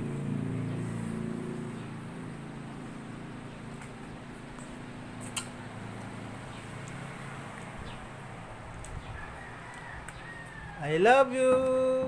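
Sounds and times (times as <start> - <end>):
sharp click: 4.6 - 5.6.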